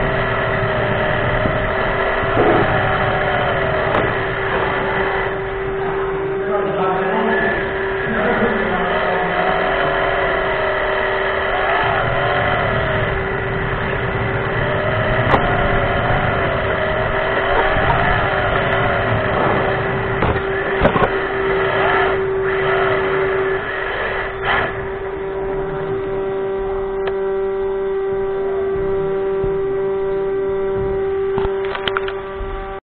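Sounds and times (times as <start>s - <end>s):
electric motor whine: 0.0s - 32.8s
sharp clicks: 31.4s - 32.2s.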